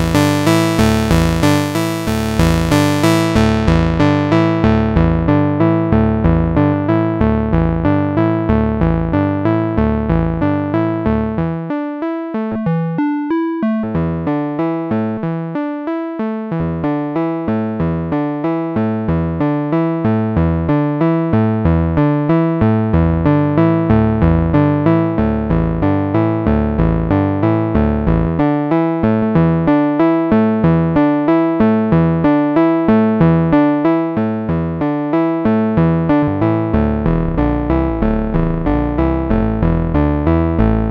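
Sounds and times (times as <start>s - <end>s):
synthesizer sequencer notes: 0.0s - 5.4s
deep synthesizer bass tones: 0.0s - 11.7s, 21.4s - 28.4s, 35.5s - 40.9s.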